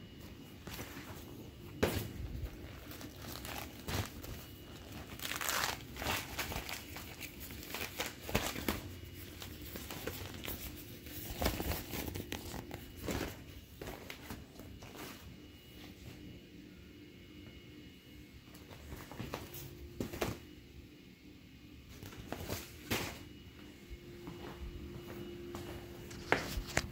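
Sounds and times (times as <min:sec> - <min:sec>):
vinyl and plastic crinkling: 0:00.2 - 0:15.6, 0:26.0 - 0:26.9.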